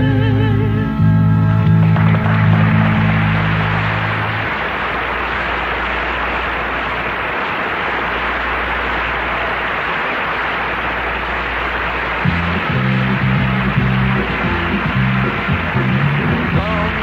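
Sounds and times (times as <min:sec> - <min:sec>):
musical notes: 0:00.0 - 0:17.0
audience applauding: 0:01.5 - 0:17.0.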